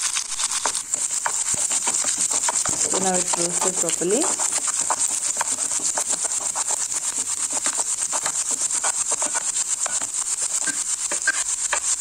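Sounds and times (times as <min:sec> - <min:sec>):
frying sizzle: 0:00.0 - 0:12.0
spatula scraping a pan: 0:00.0 - 0:12.0.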